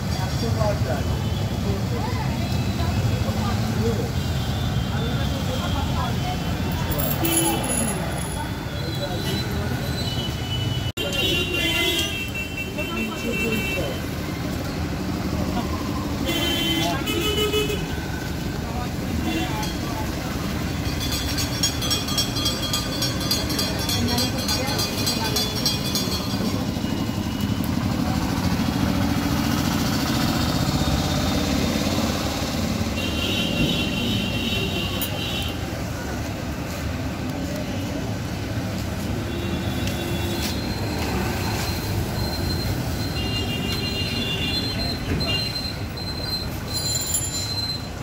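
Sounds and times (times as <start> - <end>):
motorbike and rickshaw engines: 0.0 - 48.0.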